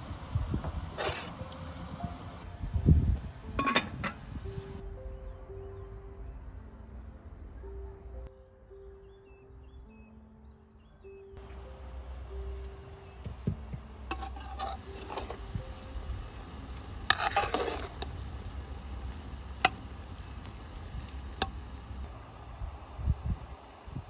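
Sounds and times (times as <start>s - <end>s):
steady low rumble: 0.0s - 8.3s, 11.4s - 24.0s
metal ladle scraping rice in pot: 14.1s - 15.9s, 16.7s - 20.6s.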